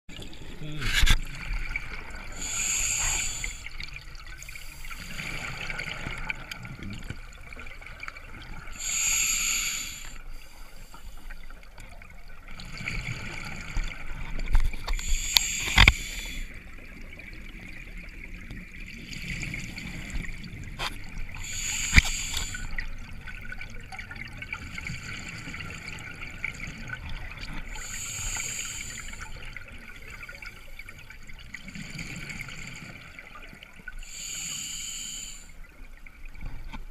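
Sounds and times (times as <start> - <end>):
bubbles gurgling: 0.1 - 8.8
scuba regulator hiss: 2.4 - 3.7, 8.8 - 10.2, 15.0 - 16.5, 21.4 - 22.7, 27.8 - 29.2, 34.0 - 35.5.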